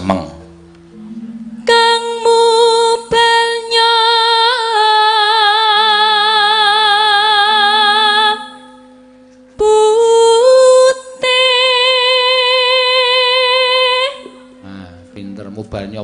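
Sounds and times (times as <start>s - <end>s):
faint low instrument tone: 0.0s - 4.1s
woman singing with vibrato: 1.0s - 8.8s, 9.6s - 14.6s.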